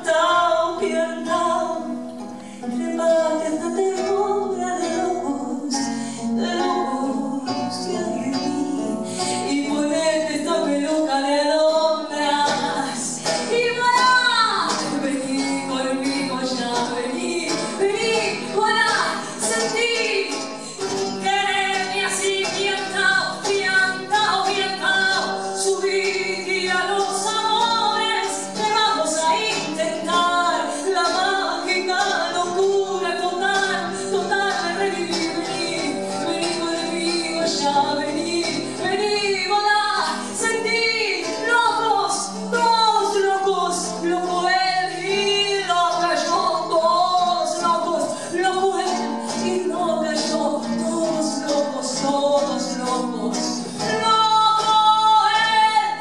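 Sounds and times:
acoustic guitar: 0.0 - 56.0
woman singing: 0.0 - 56.0.

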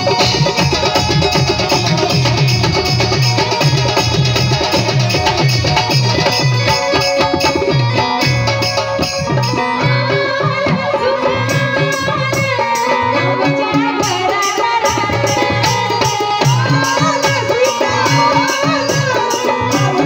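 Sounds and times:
harmonium: 0.0 - 20.0
steady drum beat: 0.0 - 20.0
devotional singing: 9.4 - 20.0.

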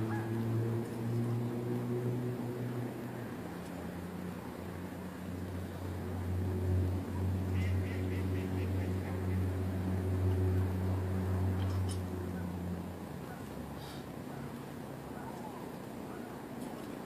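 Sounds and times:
steady low hum: 0.0 - 17.0
bird calls: 7.5 - 9.5.

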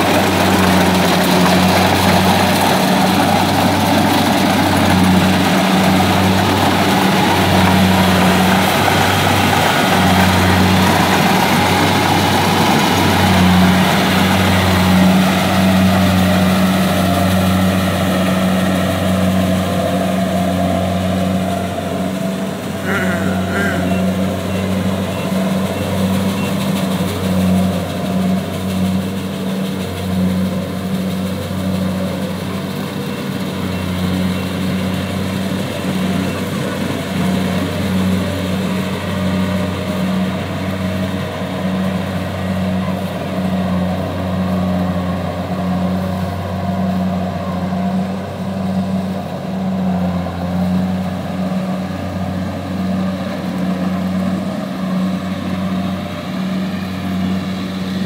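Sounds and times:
combine harvester engine running: 0.0 - 58.0.

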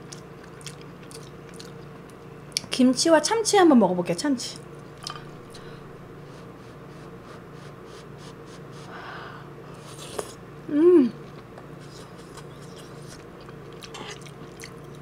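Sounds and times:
person humming: 10.7 - 11.2.

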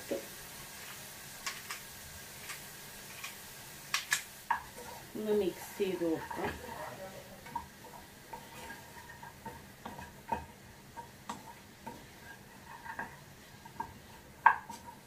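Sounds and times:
utensil tapping pan while stirring: 2.4 - 6.7, 7.4 - 15.0.

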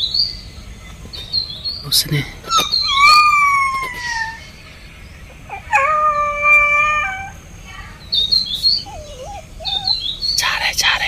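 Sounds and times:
bird chirps: 0.0 - 11.0
puppy howling: 2.5 - 4.6, 5.3 - 10.3.

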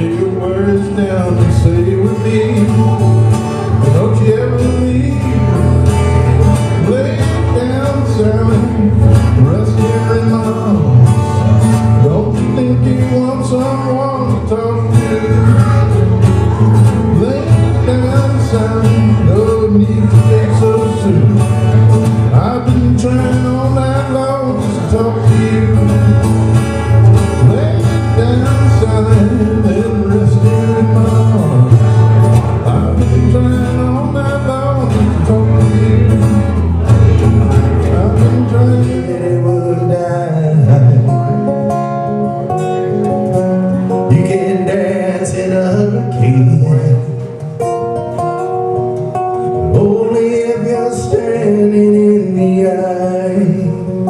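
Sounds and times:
guitar: 0.0 - 54.0
man singing country song: 0.0 - 54.0.

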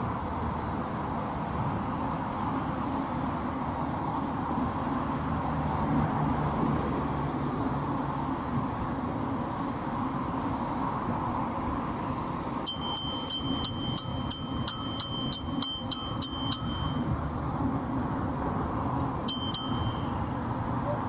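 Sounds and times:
bicycle bell ringing: 12.6 - 17.1, 19.3 - 20.5.

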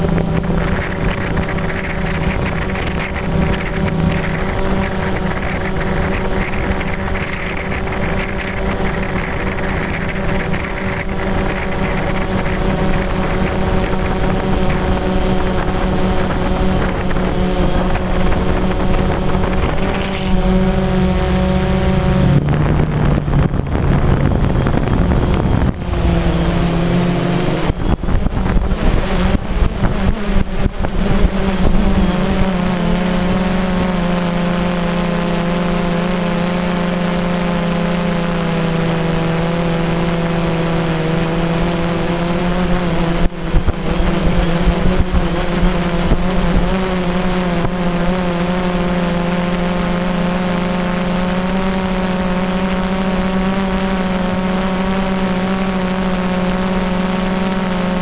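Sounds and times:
wind buffeting microphone: 0.0 - 33.9
drone propellers humming: 0.0 - 58.0.

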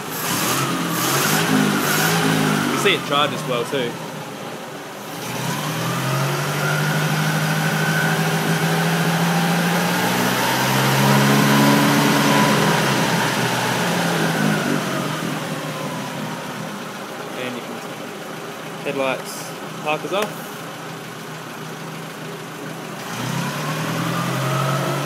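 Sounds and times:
car engine fast idle: 12.4 - 25.0.

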